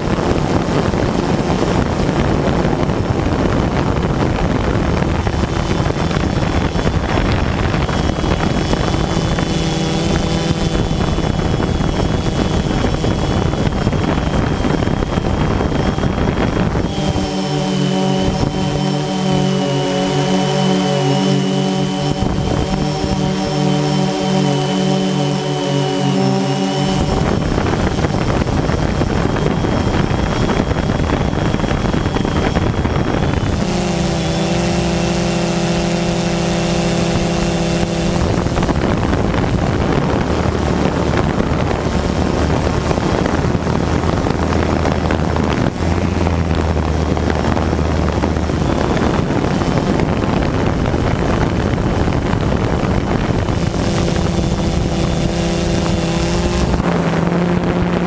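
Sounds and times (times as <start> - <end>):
drone propellers whirring: 0.0 - 58.0
humming motor tones: 0.0 - 58.0
steady rushing noise: 0.0 - 58.0.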